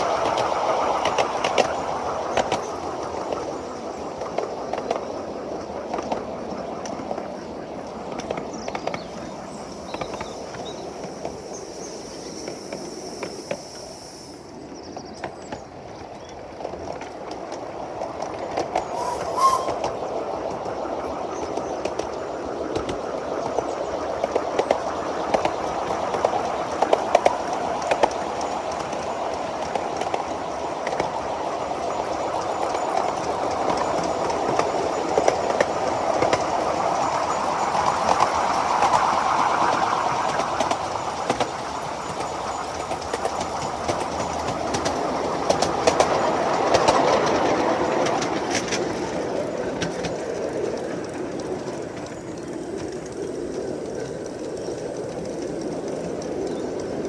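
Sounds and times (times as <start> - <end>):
train wheels rumbling on rail: 0.0 - 57.0
clicks over rail joints: 0.2 - 11.5, 32.4 - 57.0.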